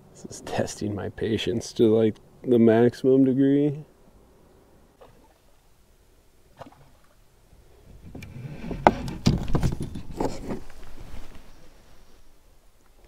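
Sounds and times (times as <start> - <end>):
fishing rod knocking and scraping: 7.9 - 10.9.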